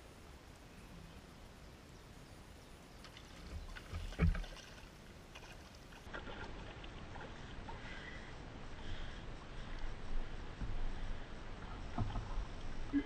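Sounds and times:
water sloshing and splashing: 0:03.0 - 0:07.8.

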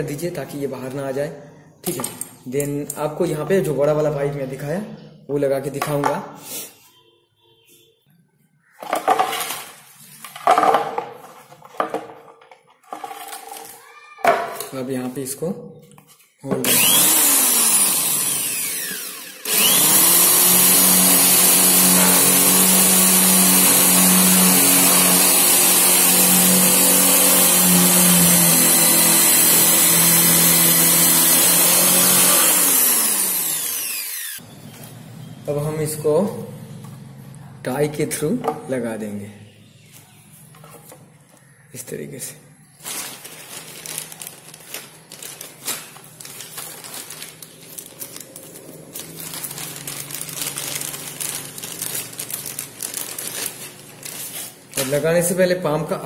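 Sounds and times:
electric drill boring wood: 0:16.6 - 0:34.4
plastic packet crinkling: 0:42.7 - 0:55.3.

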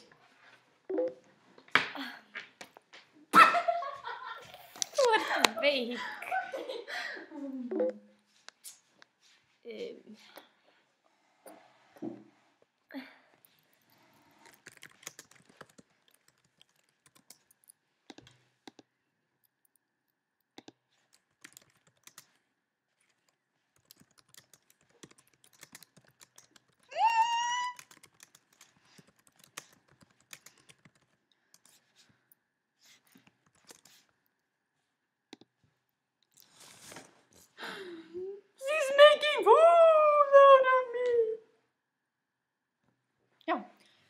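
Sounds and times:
typing on laptop keyboard: 0:13.9 - 0:18.9, 0:20.5 - 0:22.4, 0:23.0 - 0:32.0, 0:33.0 - 0:34.1.

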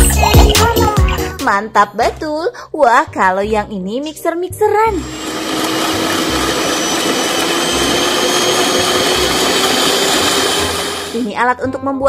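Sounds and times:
electric hand mixer whisking: 0:04.9 - 0:11.3.

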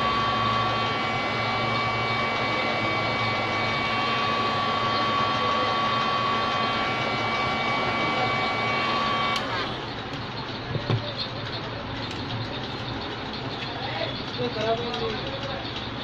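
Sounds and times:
heat gun whining: 0:00.0 - 0:11.0.

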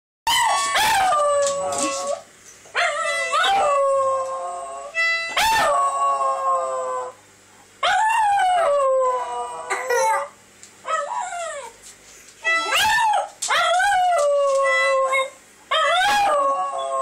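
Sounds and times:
dog howling: 0:00.3 - 0:02.2, 0:02.8 - 0:07.2, 0:12.5 - 0:17.0
toy trumpet blowing: 0:04.9 - 0:05.4, 0:12.4 - 0:12.8.

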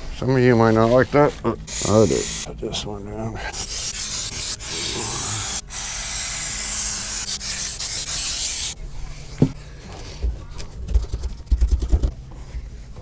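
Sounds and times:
aerosol spray hissing: 0:01.7 - 0:02.5, 0:03.6 - 0:08.8.

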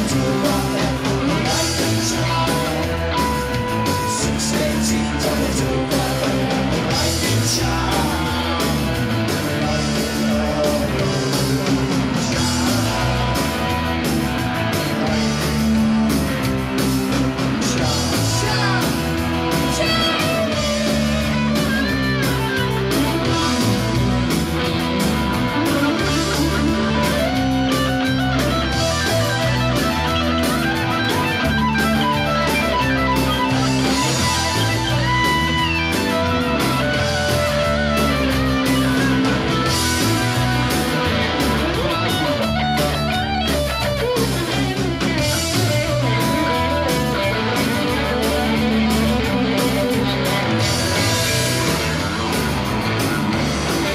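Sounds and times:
drums: 0:00.0 - 0:53.9
electric guitars: 0:00.0 - 0:53.9.

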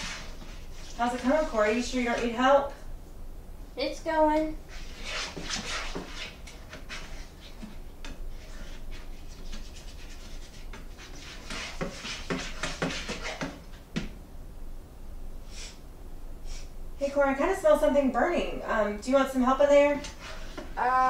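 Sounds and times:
utensil scraping a frying pan: 0:00.0 - 0:02.3, 0:04.7 - 0:13.7, 0:19.8 - 0:20.8.

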